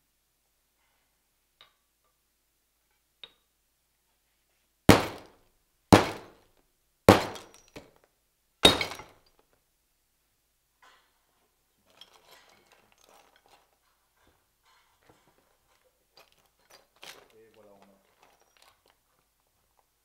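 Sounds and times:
metal tools crashing down: 0:08.6 - 0:09.2.

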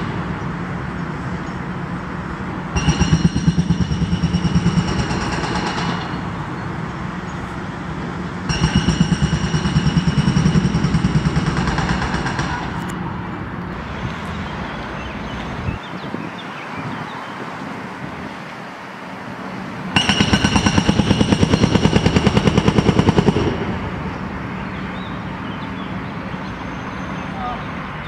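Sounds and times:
diesel engine running: 0:00.0 - 0:16.5, 0:17.6 - 0:28.0
hydraulic breaker hammering concrete: 0:02.7 - 0:06.4, 0:08.4 - 0:12.9, 0:19.9 - 0:23.9.

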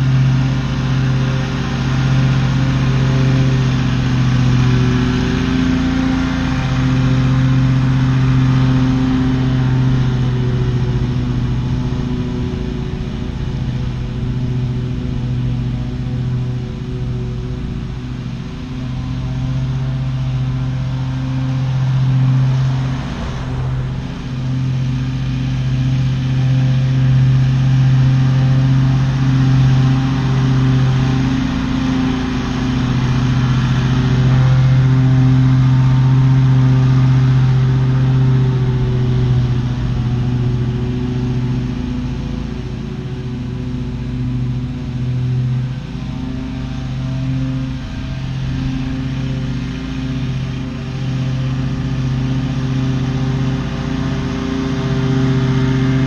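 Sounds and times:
mower engine running under load: 0:00.0 - 0:56.0.

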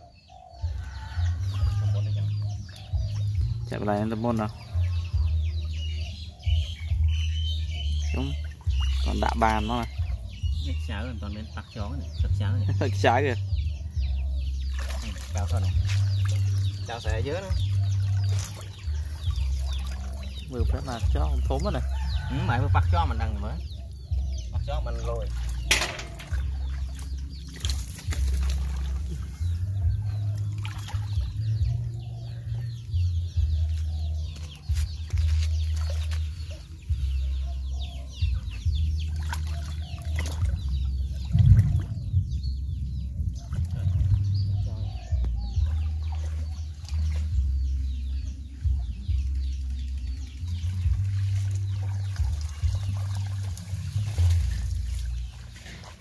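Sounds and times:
muddy water sloshing and splashing: 0:00.6 - 0:56.0
constant low rumble: 0:40.3 - 0:56.0.

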